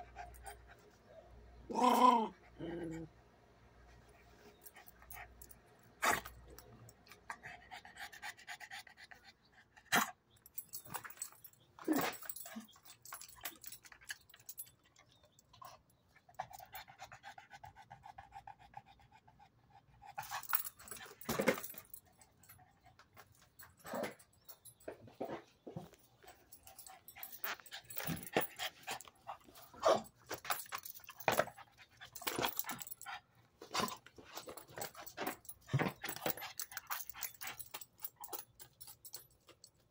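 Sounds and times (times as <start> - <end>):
dogs panting: 26.3 - 39.2.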